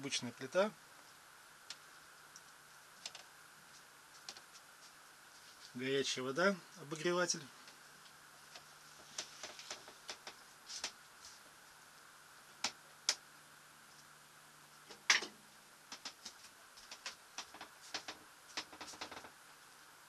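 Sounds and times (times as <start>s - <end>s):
faint low hum: 0.0s - 20.0s
small ticks: 1.6s - 5.0s, 7.6s - 11.0s, 12.6s - 13.2s, 15.9s - 19.3s
light clicks and knocks: 14.9s - 19.4s.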